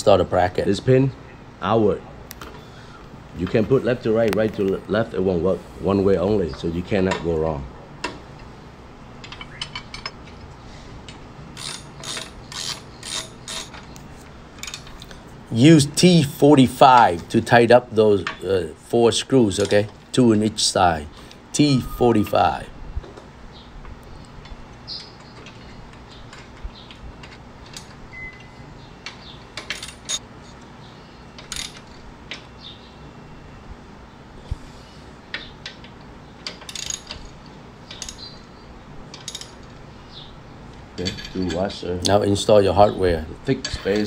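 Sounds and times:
hand ratchet clicking: 11.6s - 13.8s.

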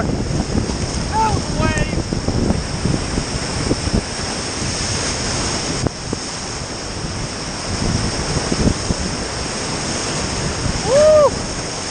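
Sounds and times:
whitewater rapids crashing: 0.0s - 11.9s
wind buffeting microphone: 0.0s - 11.9s.

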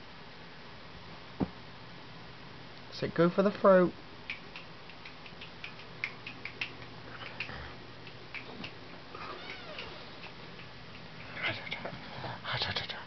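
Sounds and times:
kitten meowing softly: 9.2s - 10.0s.

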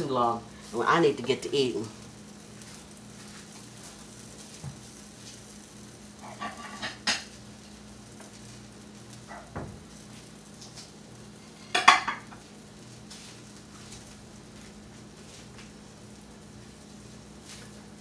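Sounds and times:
steady low hum: 0.0s - 18.0s
utensils and dishes clattering: 6.2s - 7.3s, 11.5s - 12.4s.

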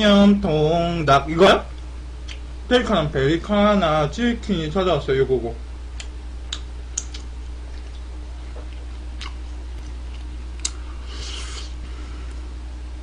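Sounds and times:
wet mouth clicks and smacks: 6.0s - 10.8s
crunchy biting and chewing: 6.0s - 11.8s.

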